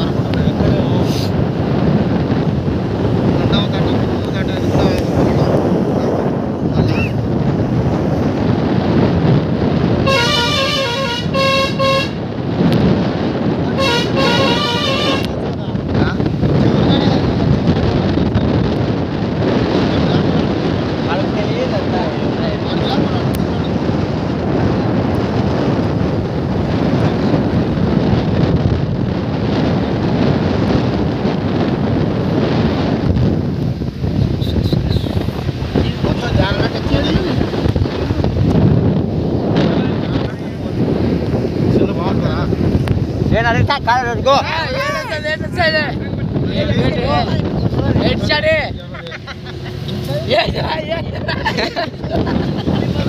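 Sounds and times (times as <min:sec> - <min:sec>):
wind and road noise: 0:00.0 - 0:53.0
vehicle horn stepped notes: 0:10.0 - 0:12.2, 0:13.8 - 0:15.4, 0:34.4 - 0:35.2.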